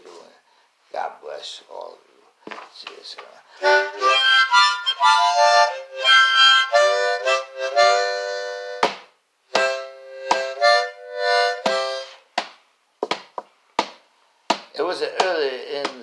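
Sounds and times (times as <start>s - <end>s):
harmonica playing chords: 3.6s - 8.9s, 9.5s - 12.3s.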